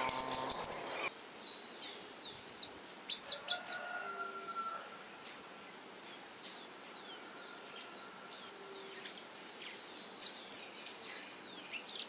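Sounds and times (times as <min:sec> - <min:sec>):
finches chirping: 0:00.0 - 0:03.8, 0:07.8 - 0:12.0.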